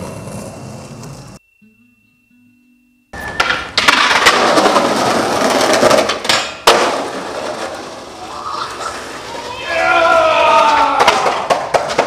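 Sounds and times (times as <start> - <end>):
skateboard rolling over concrete: 0.0 - 1.4, 3.2 - 9.7, 10.5 - 12.0
skateboard clacks: 3.2 - 9.6, 10.5 - 12.0.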